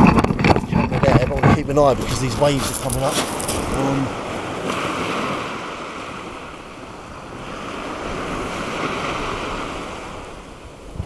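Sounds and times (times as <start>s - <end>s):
waves breaking on shingle: 0.0s - 6.2s.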